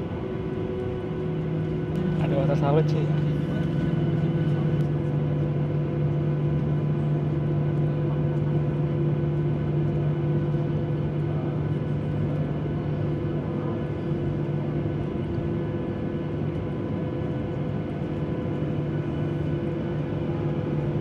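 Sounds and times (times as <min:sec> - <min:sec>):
aircraft cabin engine hum: 0:00.0 - 0:21.0.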